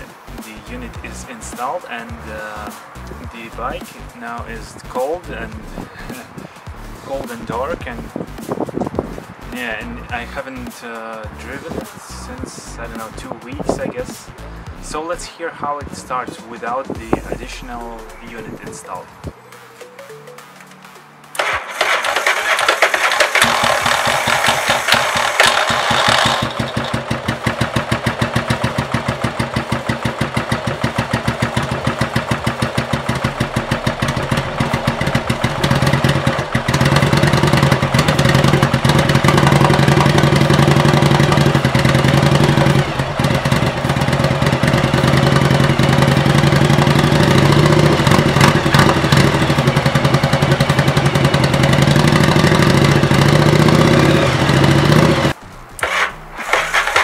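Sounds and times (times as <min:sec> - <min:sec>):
electric starter cranking engine: 0:21.3 - 0:57.0
motorcycle engine idling: 0:21.4 - 0:57.0.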